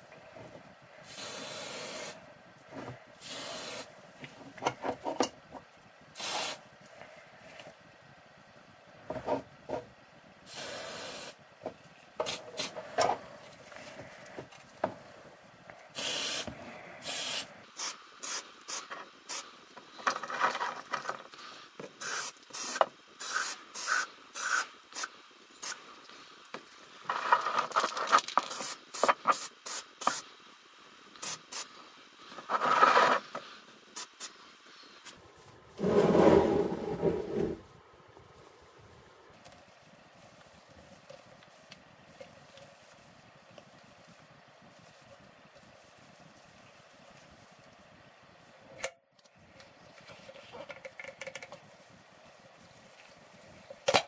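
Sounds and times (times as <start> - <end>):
spray can hissing: 1.0 - 2.2, 3.2 - 3.9, 6.2 - 6.6, 10.5 - 11.4, 12.2 - 12.8, 15.9 - 19.5, 22.0 - 25.8, 28.4 - 30.3, 31.1 - 31.8, 34.0 - 34.4.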